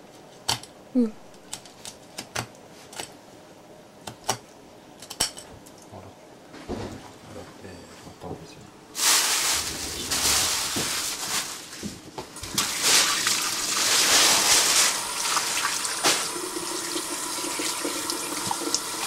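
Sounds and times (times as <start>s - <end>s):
tap water splashing into sink: 15.2s - 19.0s.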